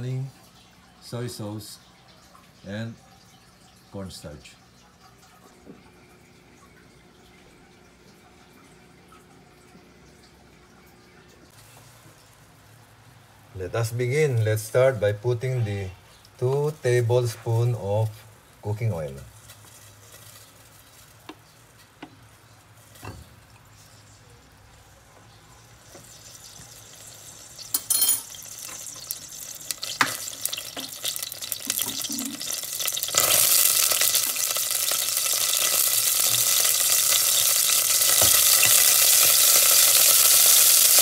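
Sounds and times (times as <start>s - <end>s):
oil crackling and sizzling: 11.4s - 41.0s
spoon clinking against pot: 27.7s - 28.8s.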